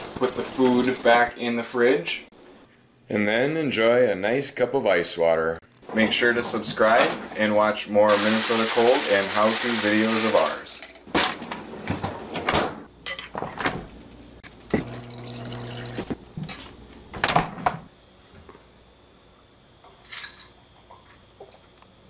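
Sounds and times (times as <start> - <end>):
ice cubes clinking in glass: 8.1 - 10.8
water dispenser running into glass: 14.7 - 16.1.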